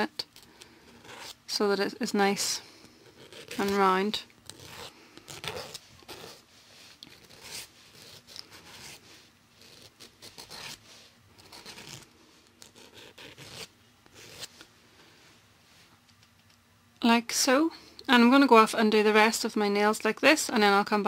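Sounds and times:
nail file scraping fingernail: 4.5s - 6.4s, 9.6s - 10.8s, 11.4s - 14.5s.

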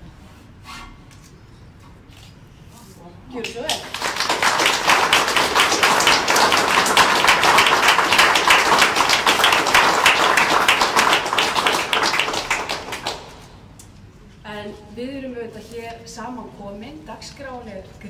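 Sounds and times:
audience applauding: 3.5s - 13.5s.

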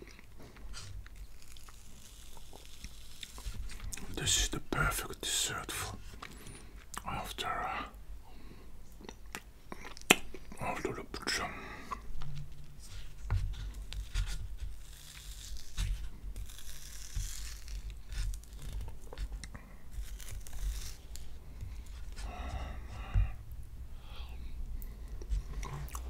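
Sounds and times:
packaging tearing and crinkling: 1.1s - 3.9s, 13.9s - 19.3s, 19.9s - 21.4s.

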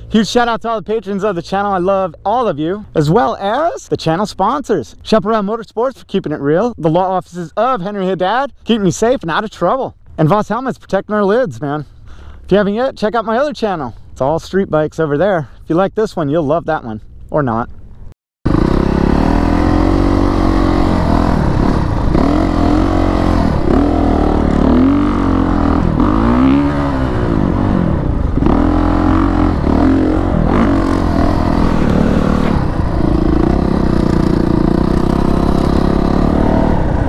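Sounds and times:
dirt bike engine revving: 18.5s - 37.0s.

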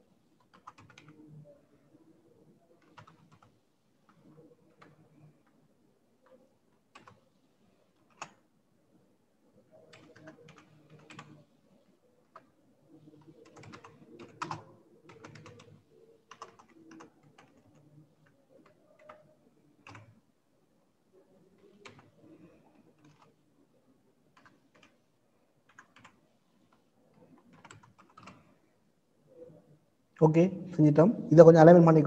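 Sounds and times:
typing on computer keyboard: 0.4s - 1.2s, 2.8s - 5.6s, 6.2s - 7.2s, 7.9s - 8.4s, 9.9s - 11.4s, 12.2s - 20.2s, 21.6s - 23.4s, 24.3s - 25.0s, 25.6s - 28.6s.

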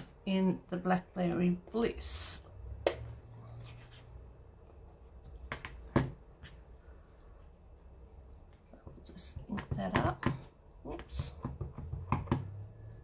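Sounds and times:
soft rustle: 3.4s - 5.4s.

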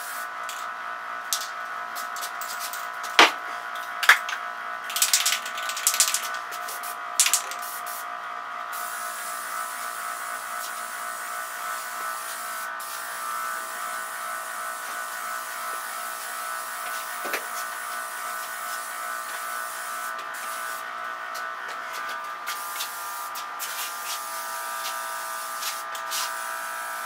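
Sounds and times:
steady buzzing hum: 0.0s - 27.0s
aerosol spray can hissing: 4.9s - 8.0s, 8.8s - 20.8s, 22.5s - 26.8s.

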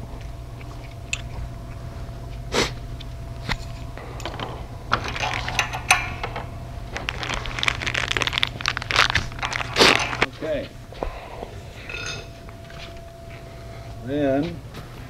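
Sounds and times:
steady low hum: 0.0s - 15.0s
metal bolts clicking and clinking: 3.4s - 6.5s.

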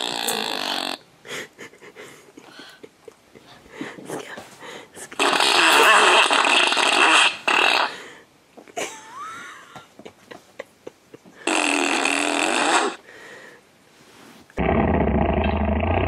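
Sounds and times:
whoopee cushion fart sounds: 0.0s - 1.0s, 5.2s - 7.9s, 11.5s - 13.0s, 14.6s - 16.0s.

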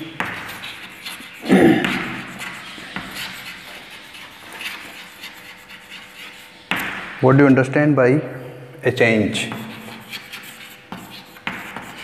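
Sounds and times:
chalk scratching on blackboard: 0.0s - 7.0s, 9.3s - 12.0s
man vocal sound: 1.4s - 2.2s.

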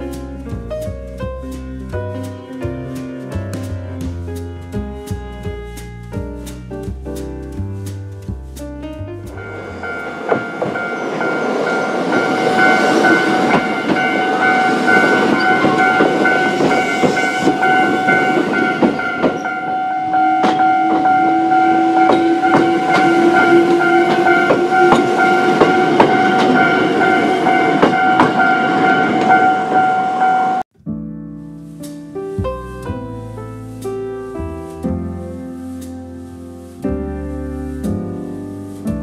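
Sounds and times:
train wheels clicking on rails: 9.3s - 19.7s, 22.0s - 28.5s
crossing bell dinging: 9.4s - 30.6s.

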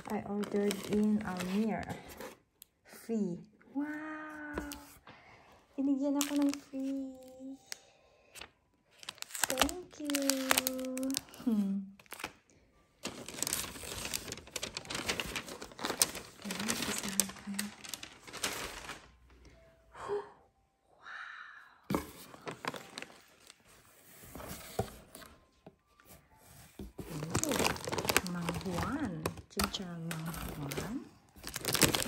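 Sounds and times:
plastic bags crinkling: 0.0s - 2.0s, 6.2s - 7.2s, 9.0s - 12.4s, 13.0s - 19.2s, 22.4s - 23.8s, 26.8s - 32.0s
cardboard flaps rustling: 13.0s - 19.1s, 26.8s - 29.0s.

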